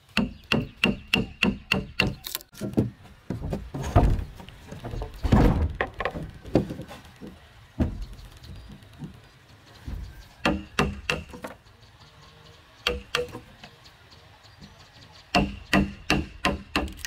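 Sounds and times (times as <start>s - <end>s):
wooden mallet striking chisel: 10.4s - 11.5s.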